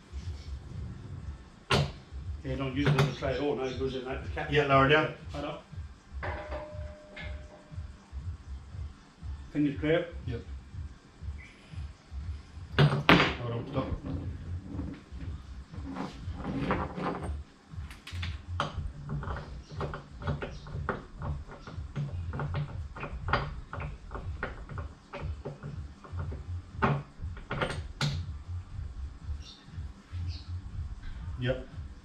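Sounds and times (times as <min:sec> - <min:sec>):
low rumble: 0:00.0 - 0:02.8
metal clicks and knocks: 0:16.6 - 0:28.3.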